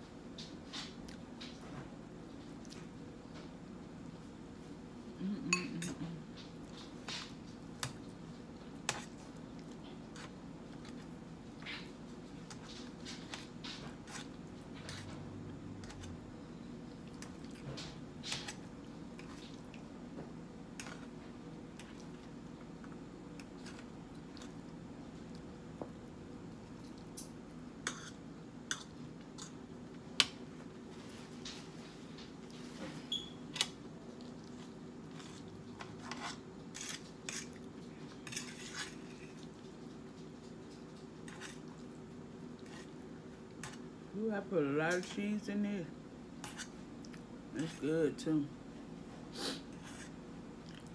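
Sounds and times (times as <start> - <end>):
low steady hum: 0.0 - 50.9
fork scraping metal platter: 38.2 - 39.3.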